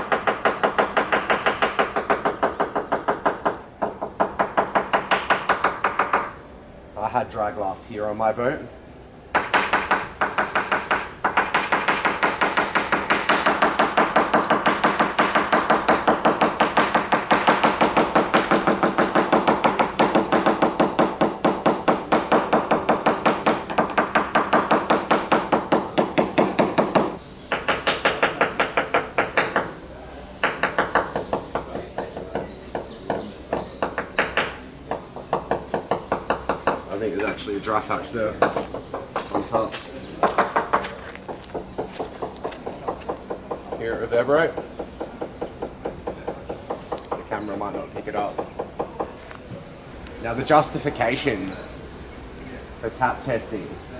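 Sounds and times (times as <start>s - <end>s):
hammer tapping fibreglass hull: 0.0s - 6.3s, 9.3s - 29.8s, 30.4s - 37.4s, 40.2s - 49.2s.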